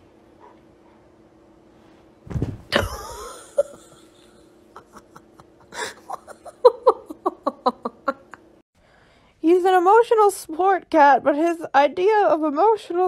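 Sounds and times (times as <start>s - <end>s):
steady low hum: 0.0s - 9.4s
thump: 2.3s - 2.7s
person laughing in short bursts: 2.7s - 8.4s.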